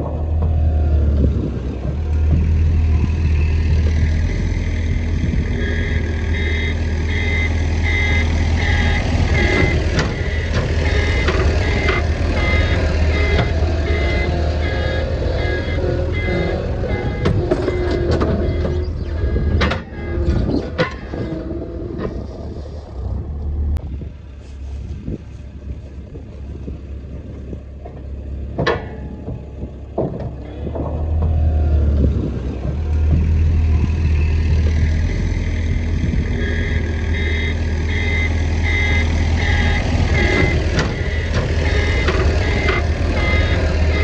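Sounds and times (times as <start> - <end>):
loader engine running: 0.0 - 44.0
reversing alarm beeping: 4.6 - 21.3, 34.8 - 44.0.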